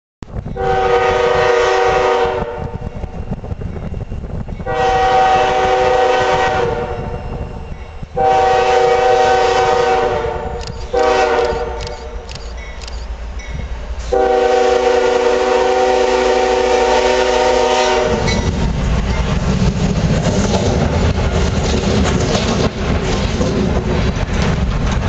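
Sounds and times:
diesel train rumbling: 0.2s - 25.0s
train air horn blasts: 0.6s - 2.9s, 4.6s - 7.5s, 8.2s - 12.3s, 14.0s - 18.5s.

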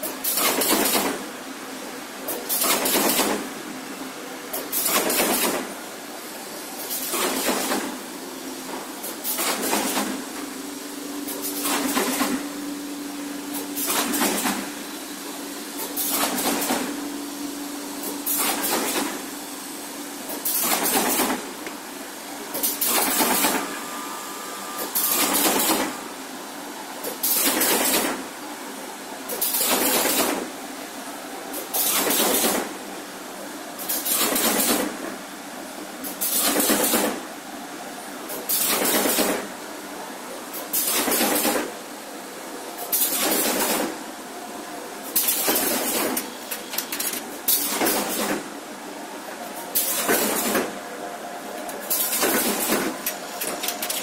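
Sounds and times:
machine hissing rush: 6.2s - 28.0s
steady machine hum: 7.8s - 27.2s.

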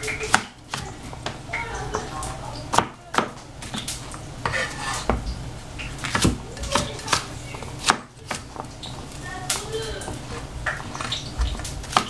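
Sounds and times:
cleaver chopping on plastic board: 0.3s - 1.4s, 2.7s - 5.2s, 6.0s - 8.7s, 10.7s - 12.0s.

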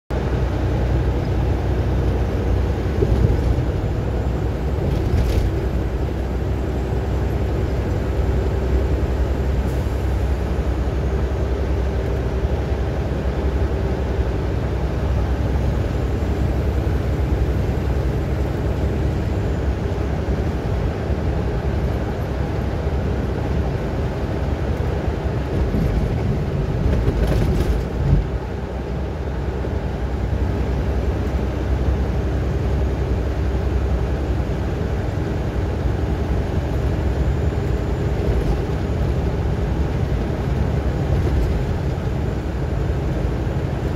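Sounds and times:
engine and road rumble in cab: 0.1s - 43.9s.

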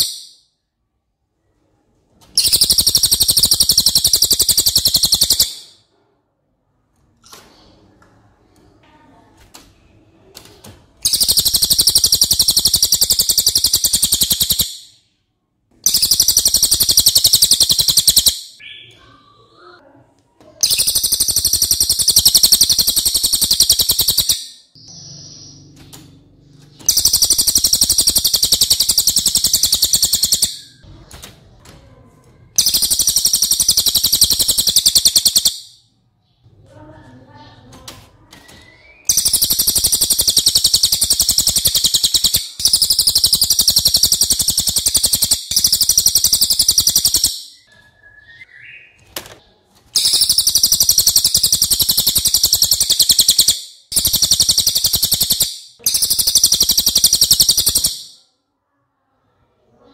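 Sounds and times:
songbird high fast trills: 2.4s - 5.6s, 50.0s - 58.2s.

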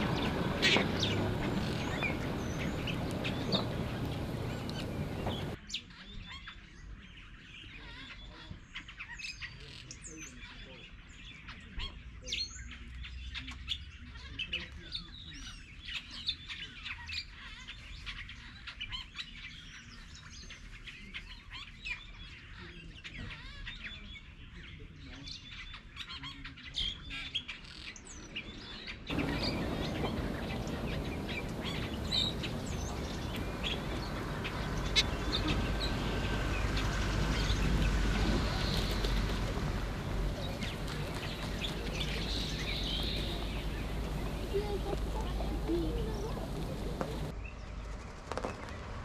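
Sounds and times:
vultures squealing and chirping: 0.0s - 5.6s, 29.1s - 47.3s
steady rushing noise: 29.1s - 47.3s.

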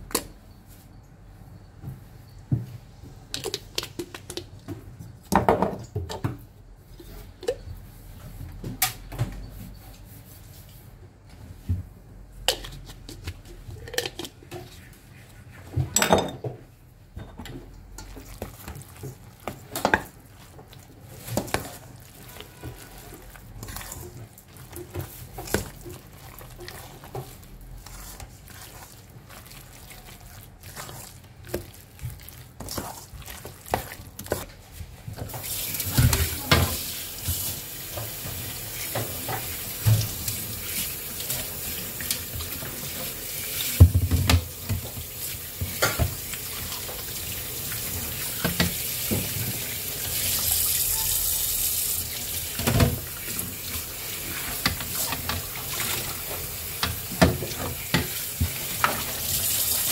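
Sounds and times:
hand squelching minced meat: 18.1s - 35.8s.

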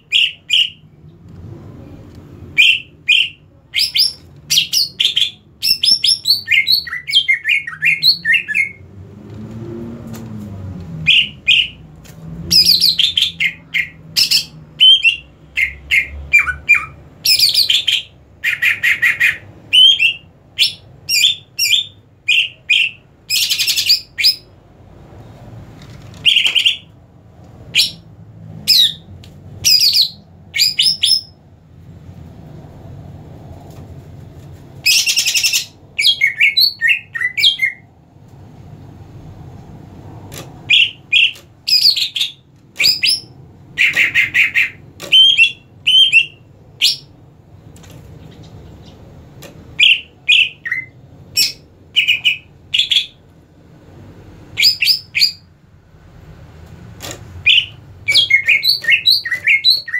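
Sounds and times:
bird singing chirps and whistles: 2.6s - 8.8s, 11.0s - 11.8s, 12.5s - 24.5s, 29.6s - 31.4s, 34.9s - 37.8s, 40.7s - 47.1s, 49.8s - 53.2s, 54.6s - 55.4s, 57.4s - 59.9s.

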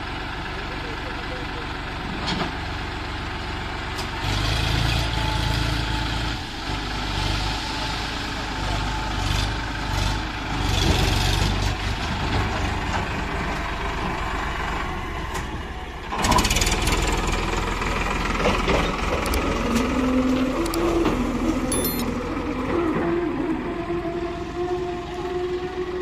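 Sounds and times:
tractor diesel engine clattering: 0.0s - 4.9s, 10.5s - 22.6s.

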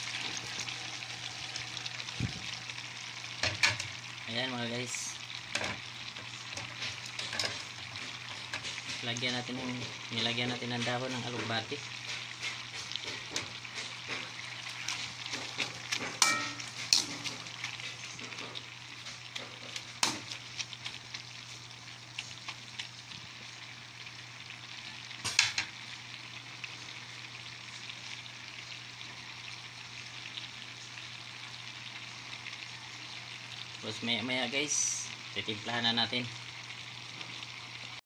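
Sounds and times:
broth boiling and bubbling: 0.0s - 33.9s
metal ladle knocking on wok: 16.2s - 16.7s.

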